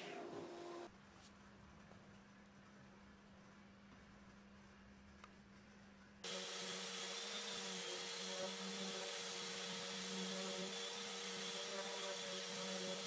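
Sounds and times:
orbital sander hissing: 0:06.2 - 0:13.0.

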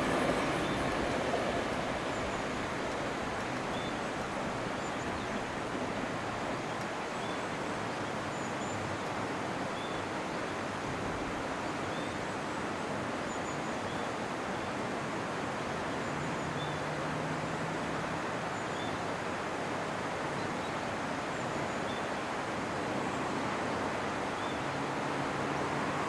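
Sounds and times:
outdoor rushing noise: 0:00.0 - 0:04.8
electric train: 0:00.0 - 0:06.5.

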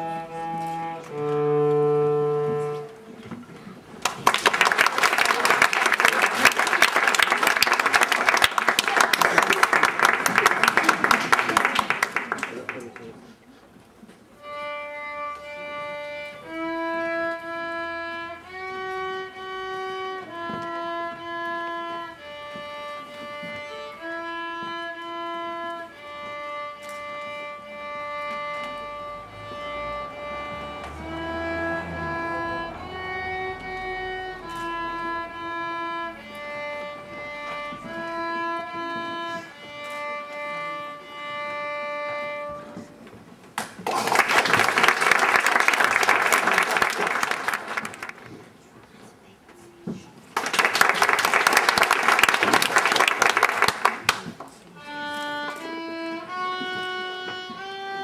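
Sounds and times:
violin playing slow melody: 0:00.0 - 0:03.7, 0:14.4 - 0:43.2, 0:54.7 - 0:58.0
applause: 0:04.0 - 0:13.2, 0:43.6 - 0:48.4, 0:50.3 - 0:54.6.

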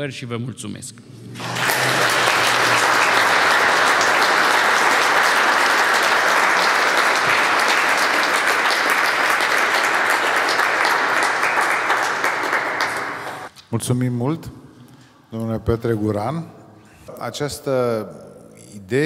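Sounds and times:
audience applauding: 0:01.2 - 0:13.5.

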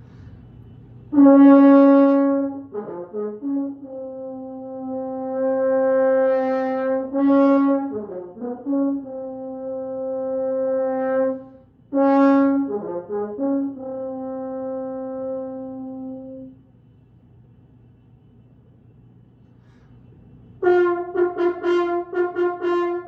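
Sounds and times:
faint room hiss: 0:00.0 - 0:23.0
solo french horn: 0:01.1 - 0:16.7, 0:20.6 - 0:23.0.

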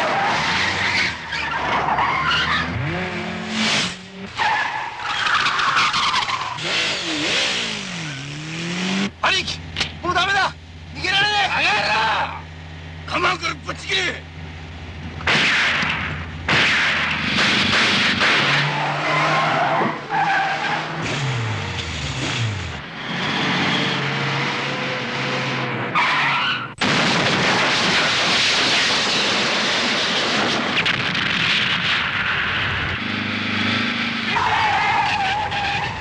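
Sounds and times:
car engines running: 0:00.0 - 0:36.0
crash and explosion rush: 0:15.2 - 0:18.8, 0:26.8 - 0:33.0.

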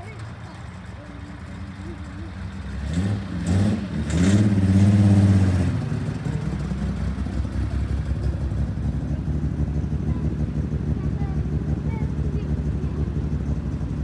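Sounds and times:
sports car engine revving: 0:01.4 - 0:14.0.

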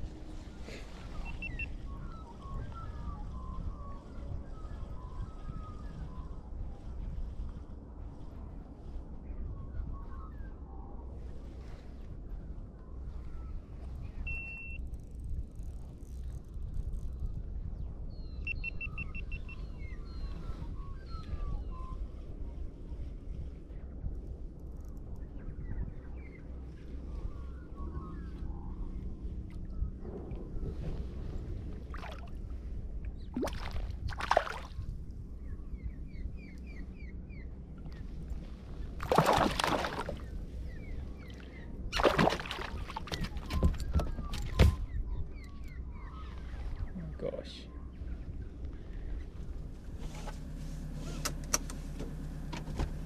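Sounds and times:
steady low hum: 0:00.0 - 0:53.0
wind rumble on microphone: 0:00.0 - 0:53.0
birds whistling: 0:00.4 - 0:06.4, 0:18.2 - 0:22.1, 0:35.4 - 0:38.1, 0:38.7 - 0:46.9
water splashing against kayak: 0:33.4 - 0:34.8, 0:39.0 - 0:40.3, 0:41.9 - 0:44.8.

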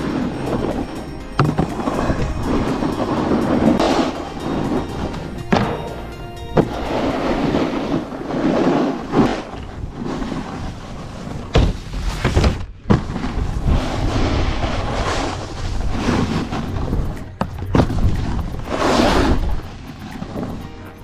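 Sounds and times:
snowboard carving on snow: 0:00.0 - 0:21.0
wind rushing over microphone: 0:12.4 - 0:20.7.

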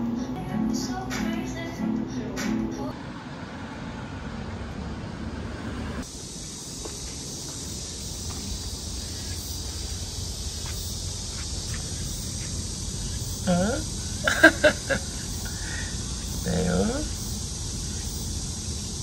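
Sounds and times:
low traffic rumble: 0:00.0 - 0:19.0
steady hiss: 0:06.0 - 0:19.0
bright high hiss: 0:06.1 - 0:19.0.

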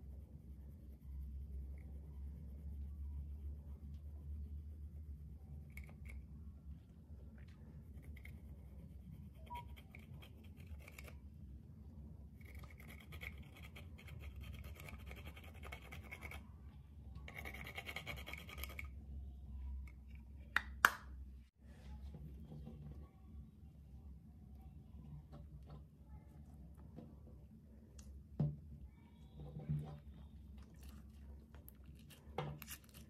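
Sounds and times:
tool scraping eyeshadow powder: 0:12.4 - 0:16.4.

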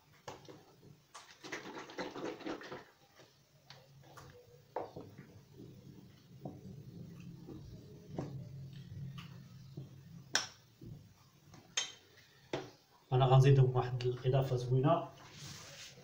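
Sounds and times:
liquid pattering: 0:01.1 - 0:03.3.

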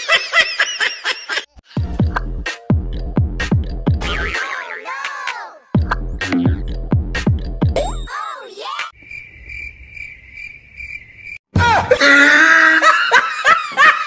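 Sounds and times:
bouncy music: 0:01.8 - 0:08.1
crickets chirping: 0:09.0 - 0:11.4.

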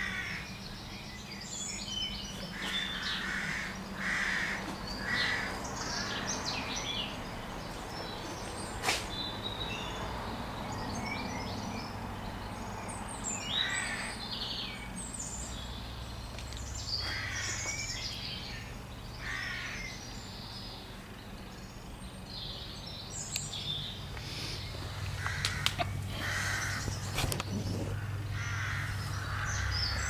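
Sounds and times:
crow cawing: 0:00.0 - 0:00.4, 0:02.5 - 0:06.2, 0:13.6 - 0:14.2, 0:17.0 - 0:17.7, 0:19.2 - 0:20.0, 0:25.2 - 0:27.0, 0:27.9 - 0:30.0.

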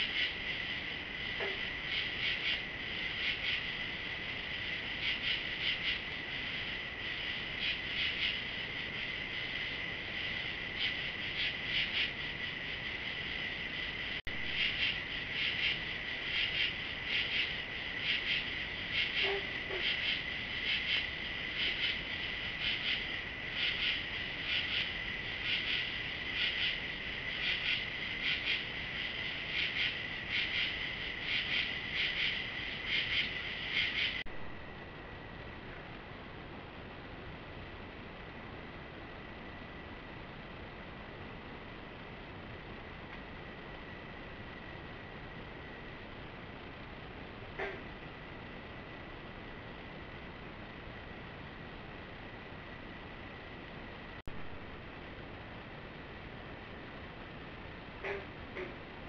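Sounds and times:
crickets trilling: 0:00.0 - 0:35.9, 0:55.7 - 0:59.0
insects chirping: 0:00.0 - 0:59.0.

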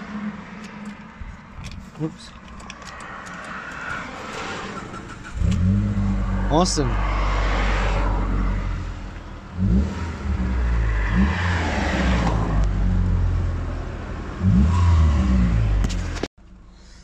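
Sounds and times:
car engine revving over idle: 0:02.7 - 0:16.3.

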